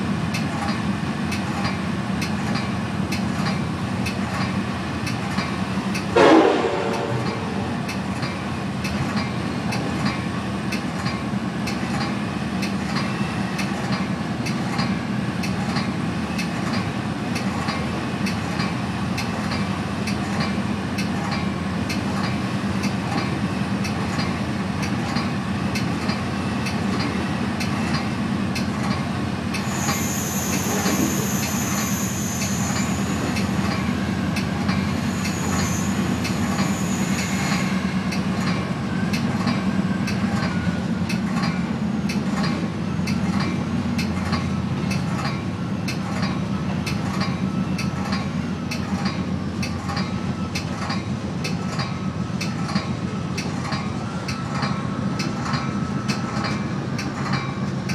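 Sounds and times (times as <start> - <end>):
train rumbling: 0.0 - 57.9
train wheels clicking: 0.3 - 57.9
locomotive horn blast: 6.1 - 7.7.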